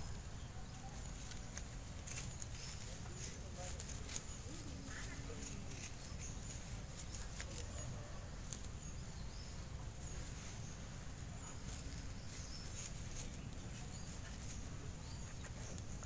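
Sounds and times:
rustling of soil: 0.0 - 16.0.

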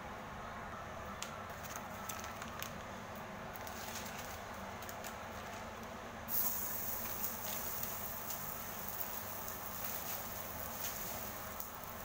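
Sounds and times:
burger patty sizzling: 6.3 - 12.0.

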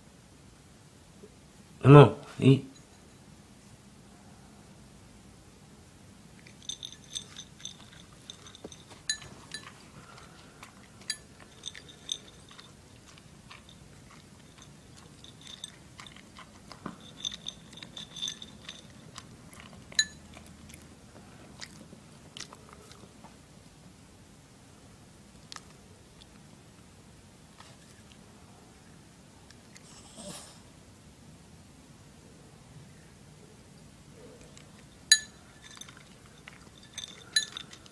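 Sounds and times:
kibble clinking against ceramic bowl: 6.4 - 20.8, 34.8 - 37.9
dog crunching kibble: 6.4 - 23.2, 34.4 - 37.9.

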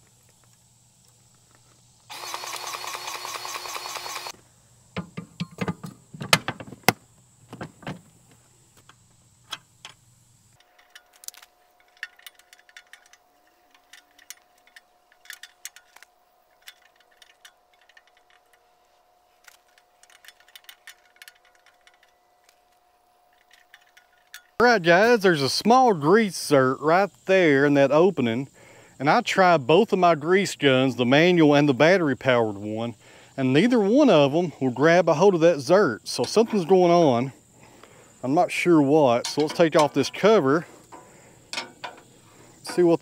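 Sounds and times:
grease gun motor running: 1.7 - 4.4
metal coupler clicks and knocks: 39.2 - 40.1, 40.9 - 42.9.

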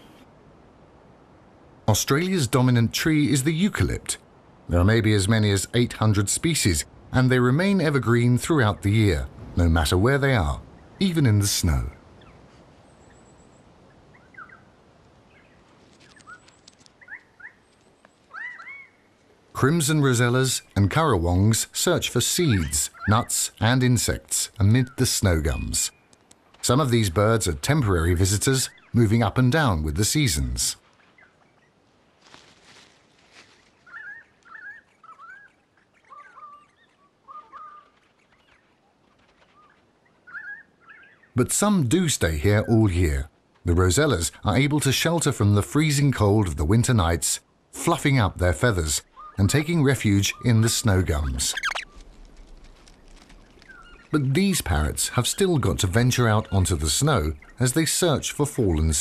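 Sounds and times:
faint bird chirps: 12.2 - 14.7, 15.3 - 19.2, 32.8 - 41.4, 49.0 - 49.6, 50.3 - 52.2, 52.9 - 54.7
soft even hiss: 19.0 - 34.5.

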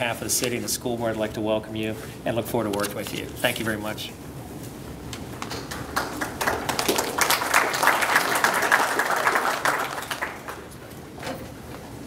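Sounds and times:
audience applauding: 5.5 - 10.9.

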